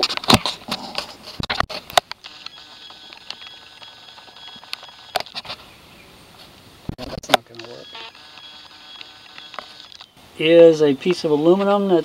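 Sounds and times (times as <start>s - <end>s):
faint steady high tones: 2.2s - 5.3s, 7.5s - 11.4s.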